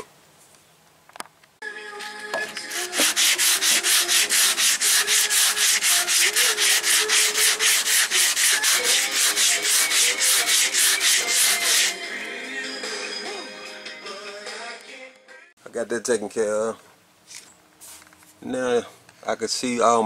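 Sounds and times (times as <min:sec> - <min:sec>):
hand sanding strokes: 0:02.6 - 0:12.0.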